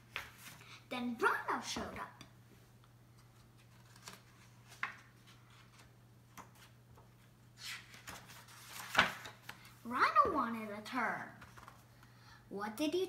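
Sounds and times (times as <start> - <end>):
faint steady hum: 0.0 - 13.0
paper page rustling: 3.2 - 9.8, 11.4 - 11.9.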